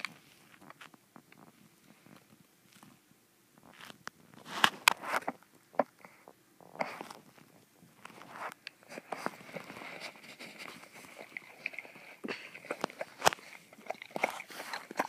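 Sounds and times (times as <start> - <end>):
plastic bag crinkling: 8.0 - 15.0.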